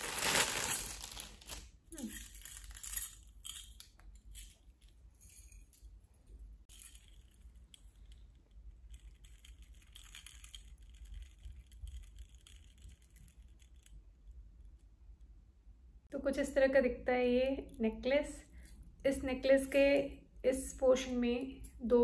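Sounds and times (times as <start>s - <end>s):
jewellery jingling: 0.0s - 14.4s
metal bangles chinking: 0.2s - 14.8s.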